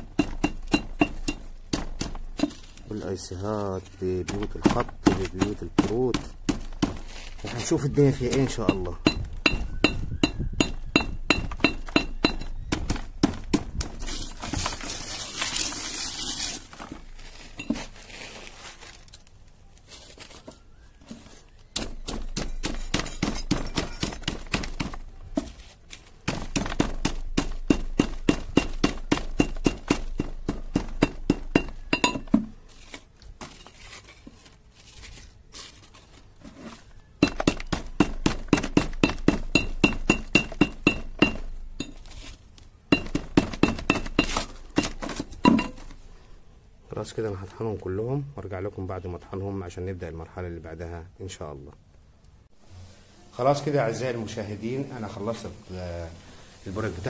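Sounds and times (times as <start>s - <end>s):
pestle crunching in metal bucket: 0.0s - 19.0s, 21.6s - 46.0s.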